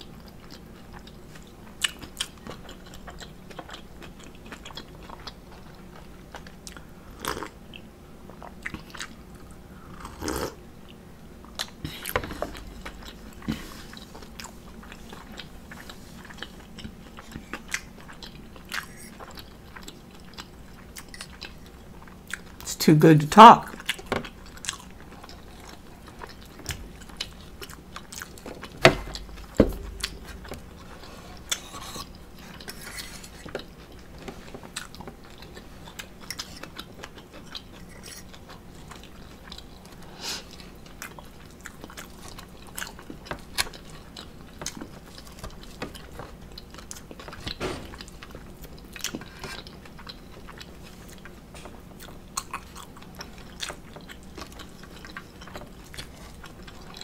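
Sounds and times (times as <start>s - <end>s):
person chewing: 0.0s - 22.7s, 23.6s - 57.0s
loud knocks: 28.9s - 30.1s.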